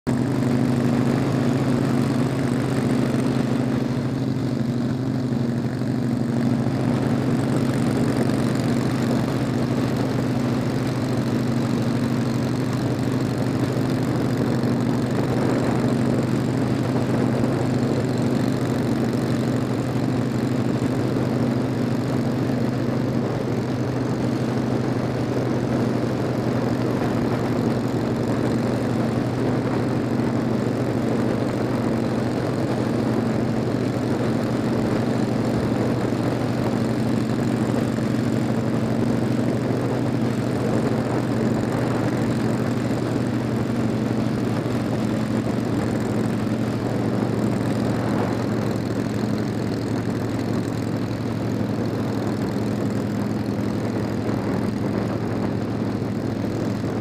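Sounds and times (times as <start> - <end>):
motorcycle engine cruising: 0.0 - 57.0
wind noise on microphone: 34.1 - 57.0.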